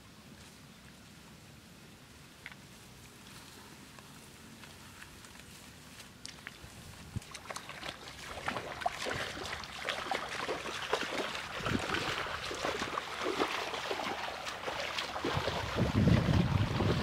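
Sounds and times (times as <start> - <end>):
tall grass rustling: 0.0 - 8.6.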